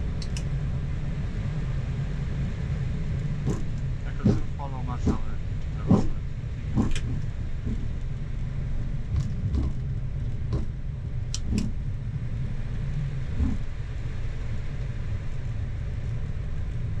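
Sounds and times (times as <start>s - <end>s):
airplane cockpit rumble: 0.0s - 17.0s
soft thumps: 3.4s - 6.2s, 6.8s - 8.0s, 9.1s - 9.8s, 10.5s - 10.8s.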